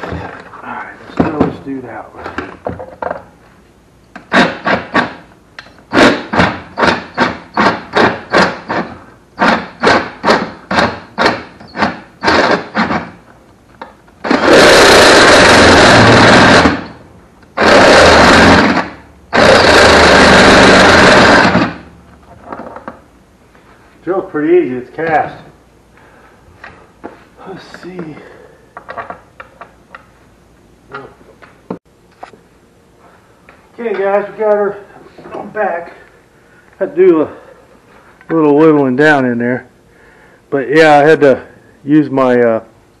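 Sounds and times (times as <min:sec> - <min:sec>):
cordless drill drilling metal: 0:14.2 - 0:17.0, 0:17.6 - 0:21.8.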